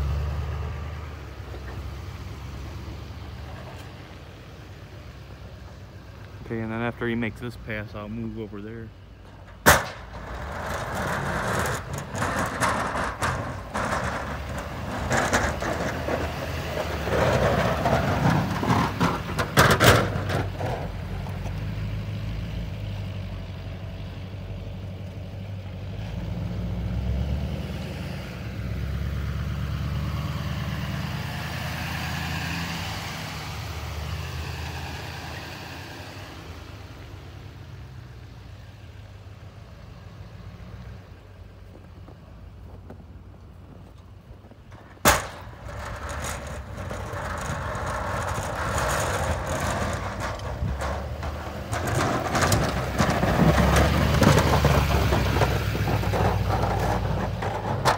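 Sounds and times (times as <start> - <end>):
sharp bangs: 9.5 - 15.7, 45.0 - 50.3
truck engine running: 41.6 - 57.9.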